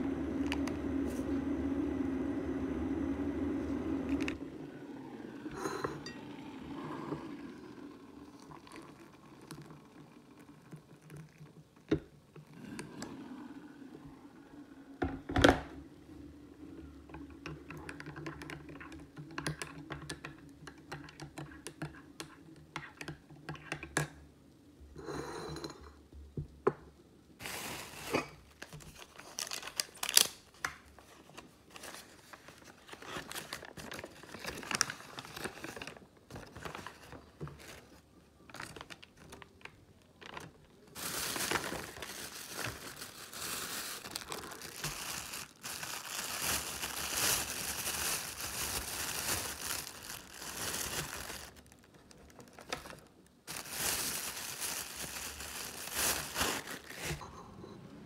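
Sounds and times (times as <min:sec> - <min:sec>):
plastic bag crinkling: 0:27.4 - 0:30.6, 0:31.6 - 0:57.2
food wrappers crinkling and tearing: 0:27.4 - 0:57.2.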